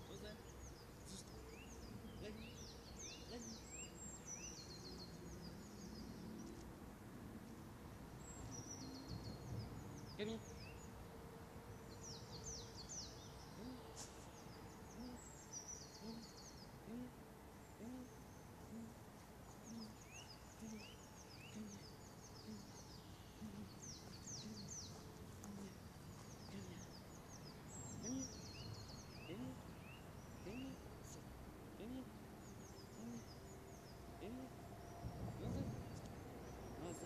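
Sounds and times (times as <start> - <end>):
songbird trilling: 0.0 - 6.6, 12.0 - 34.6
short low bird calls: 12.0 - 37.0.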